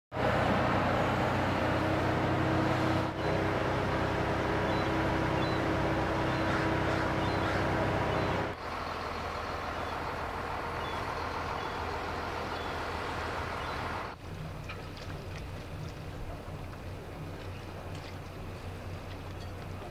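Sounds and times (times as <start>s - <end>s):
boat engine running: 0.1s - 19.9s
water noise: 0.2s - 19.9s.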